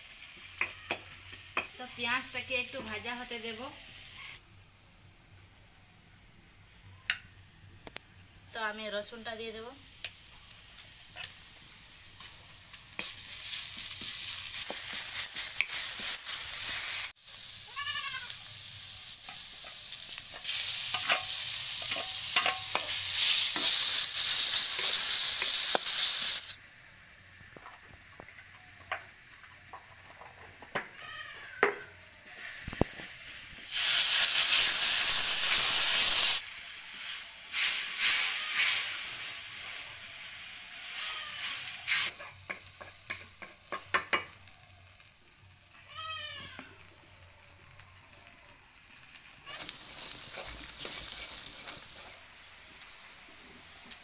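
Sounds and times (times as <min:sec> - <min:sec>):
onion sizzling in hot oil: 0:00.0 - 0:04.4, 0:05.2 - 0:54.0
goat bleating: 0:17.7 - 0:18.4.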